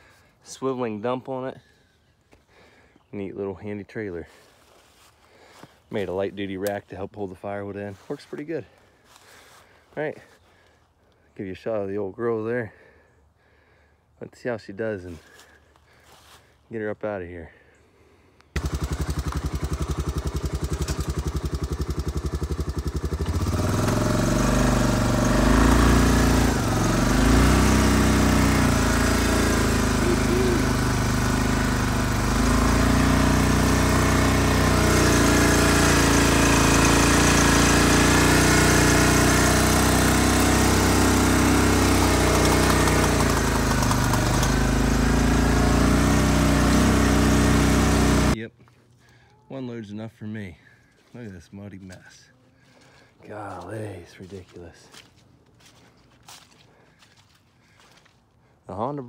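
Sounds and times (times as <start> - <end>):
atv engine revving under load: 18.5 - 48.4.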